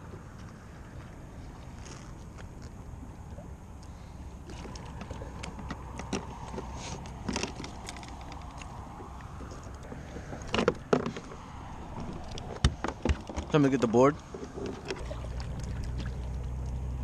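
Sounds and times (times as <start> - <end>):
steady low rumble: 0.0 - 12.8, 13.4 - 17.0
clicks and light knocks: 4.6 - 11.4.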